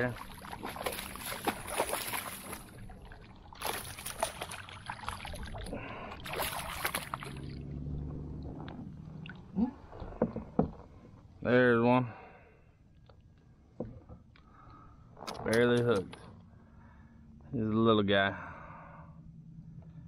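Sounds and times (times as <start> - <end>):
water splashing: 0.0 - 10.3
low hum: 0.0 - 11.7, 12.3 - 20.0.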